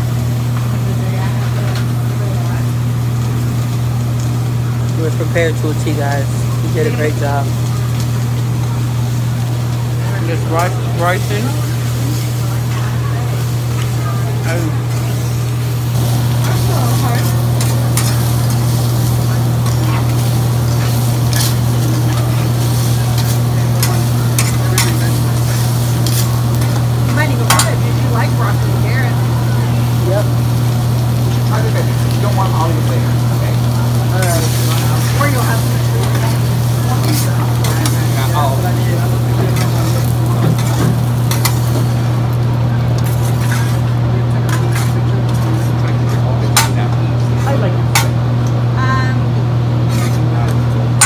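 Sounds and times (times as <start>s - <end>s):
steady low hum: 0.0s - 51.0s
vegetables sizzling: 0.0s - 51.0s
spatulas scraping steel griddle: 10.2s - 29.0s, 34.0s - 42.2s, 42.8s - 48.2s, 49.8s - 50.6s.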